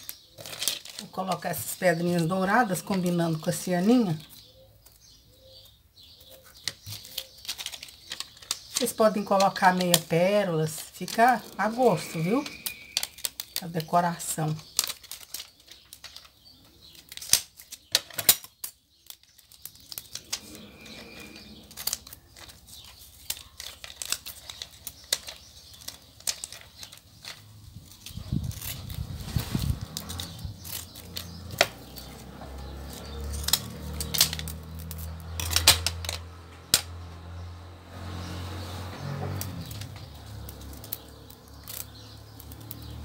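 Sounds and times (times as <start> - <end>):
plastic rustling: 0.0 - 3.2, 6.2 - 36.3.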